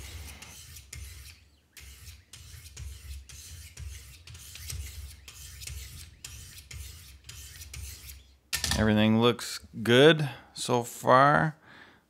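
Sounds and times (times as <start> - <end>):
sharpening stone rasping on knife: 0.0 - 8.3.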